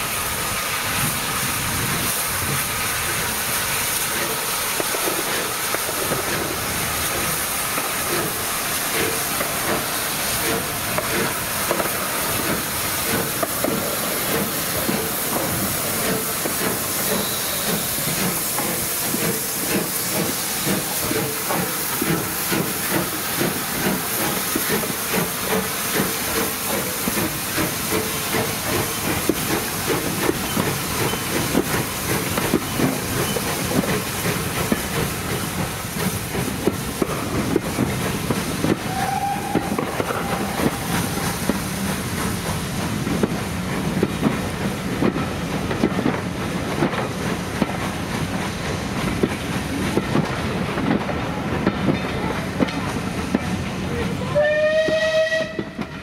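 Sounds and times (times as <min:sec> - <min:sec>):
steam locomotive hissing: 0:00.0 - 0:56.0
locomotive exhaust chuffs: 0:08.0 - 0:43.4.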